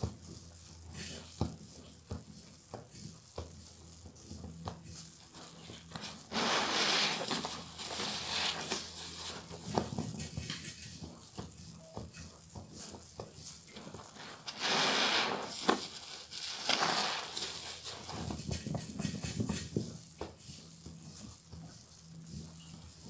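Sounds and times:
sponges squelching in suds: 14.1 - 18.2.

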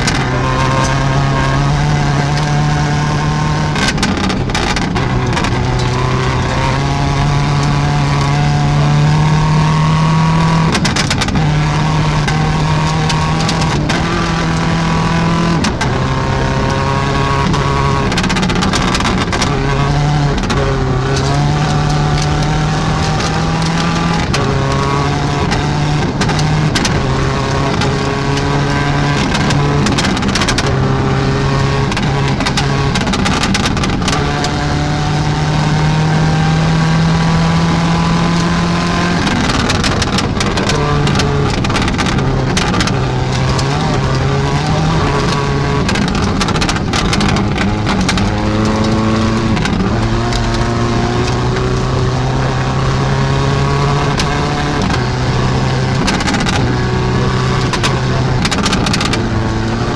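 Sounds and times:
rally car engine: 0.0 - 59.9
sharp cracks and clicks: 39.2 - 50.6, 57.6 - 59.8.

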